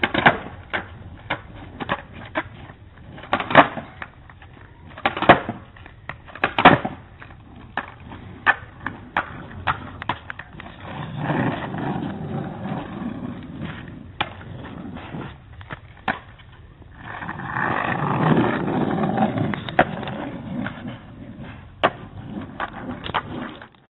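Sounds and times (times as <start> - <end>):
skate wheels rolling on pavement: 0.0 - 23.9
boards clacking on ground: 3.2 - 10.8.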